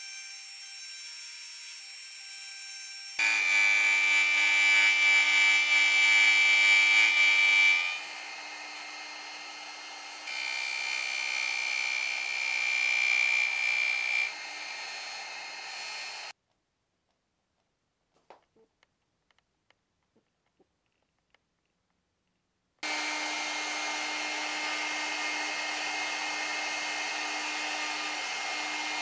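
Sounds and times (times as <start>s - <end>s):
router bit cutting wood: 0.0s - 16.3s, 22.8s - 29.0s
router spindle whining: 0.0s - 16.4s, 22.8s - 29.0s.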